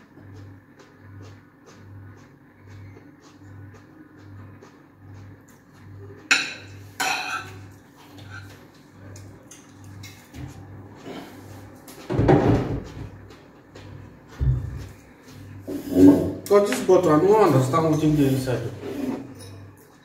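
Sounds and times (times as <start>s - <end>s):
cutlery clinking on a plate: 6.3s - 8.6s.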